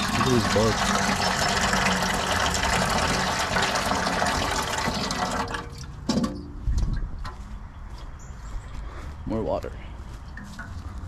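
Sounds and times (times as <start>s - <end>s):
water splashing into a bucket: 0.0s - 6.3s.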